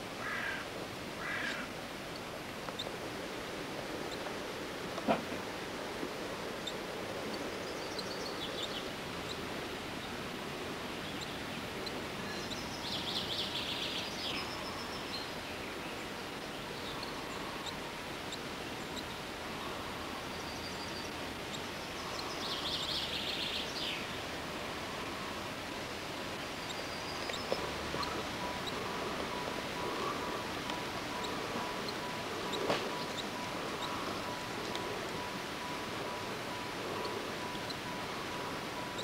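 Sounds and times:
outdoor background hiss: 0:00.0 - 0:39.0
songbird trilling: 0:26.6 - 0:36.2.

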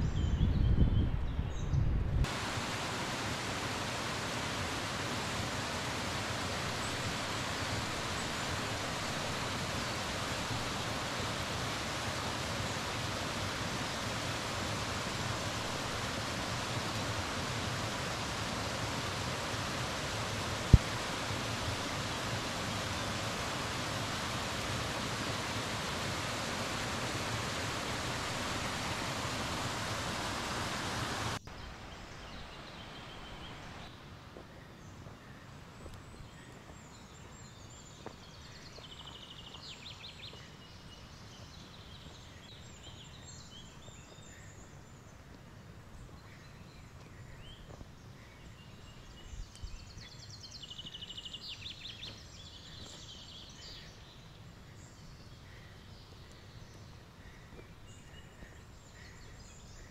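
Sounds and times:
waterfall pouring over rocks: 0:02.3 - 0:31.4.

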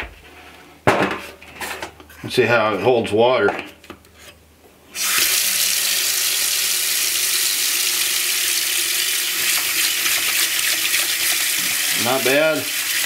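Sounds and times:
faucet water running into sink: 0:05.0 - 0:13.0.

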